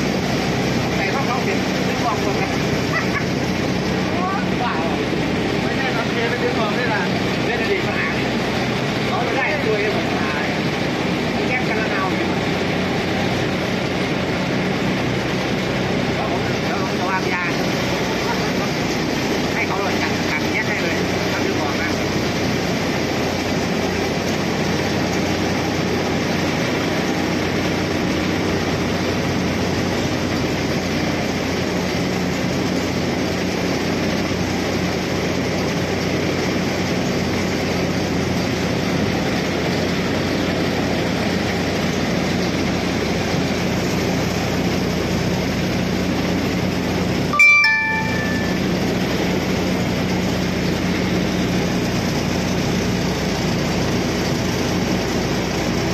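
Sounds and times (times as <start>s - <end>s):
boat engine running: 0.0s - 55.9s
water rushing along hull: 0.0s - 55.9s
short high tones: 47.3s - 49.0s.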